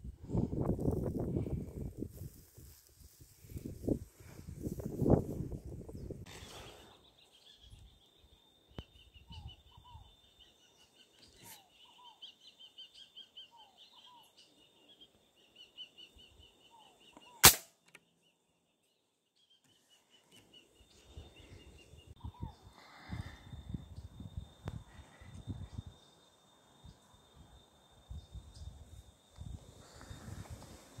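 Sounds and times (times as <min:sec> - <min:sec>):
rifle shot: 0:17.4 - 0:17.8.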